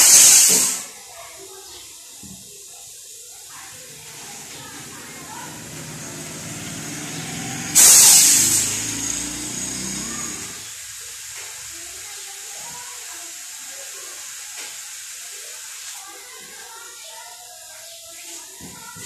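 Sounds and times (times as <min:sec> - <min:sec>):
compressed air hissing from pipe: 0:00.0 - 0:01.0, 0:03.0 - 0:11.6.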